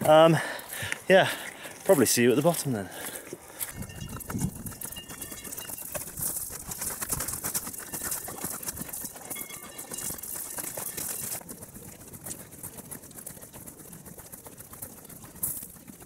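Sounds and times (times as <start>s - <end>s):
footsteps on gravel: 0.0s - 11.5s.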